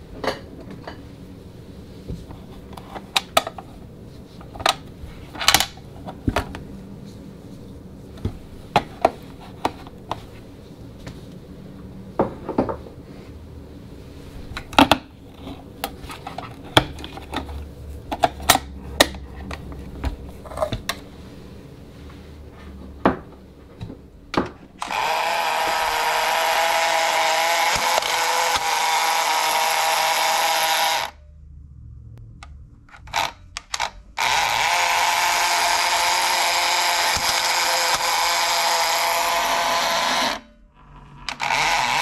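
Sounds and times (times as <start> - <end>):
low steady hum: 0.0 - 42.0
hands handling toy clicks and knocks: 4.4 - 6.6, 14.5 - 21.0, 23.8 - 31.1, 32.4 - 39.4.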